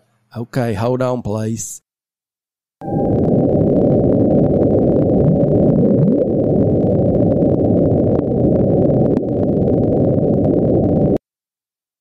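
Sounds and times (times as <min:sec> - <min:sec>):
dense low underwater rumble: 0:02.8 - 0:11.2.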